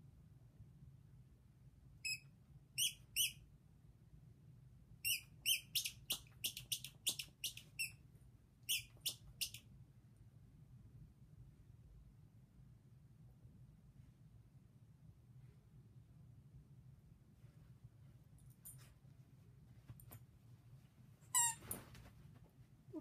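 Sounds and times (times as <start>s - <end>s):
rubber squeaky toy squeaking: 2.8s - 3.4s, 5.0s - 8.0s, 8.7s - 9.6s, 21.3s - 21.8s.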